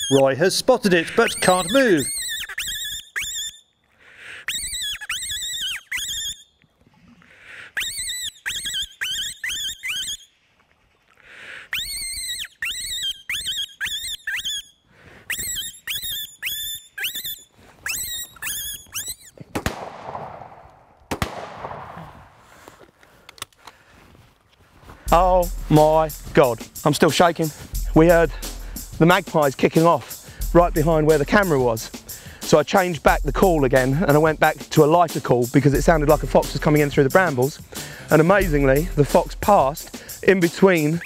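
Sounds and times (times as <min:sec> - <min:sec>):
fox squealing: 0:00.0 - 0:06.5, 0:07.5 - 0:10.3, 0:11.5 - 0:19.5
shotgun firing: 0:19.5 - 0:22.4.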